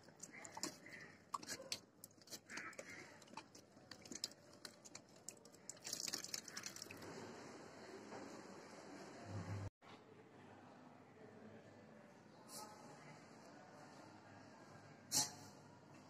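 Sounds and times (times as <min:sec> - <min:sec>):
dog lapping water: 0:00.0 - 0:07.0.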